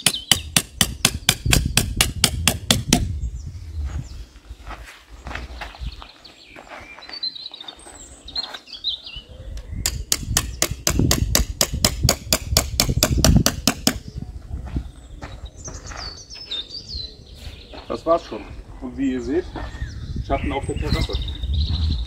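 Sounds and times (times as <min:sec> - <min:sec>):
hammer striking tent peg: 0:00.0 - 0:03.1, 0:09.9 - 0:14.0
birds chirping: 0:00.0 - 0:22.0.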